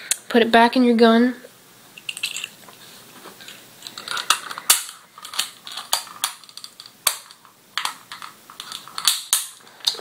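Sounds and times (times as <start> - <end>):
small metal parts clicking and rattling: 2.0 - 2.6, 3.4 - 10.0.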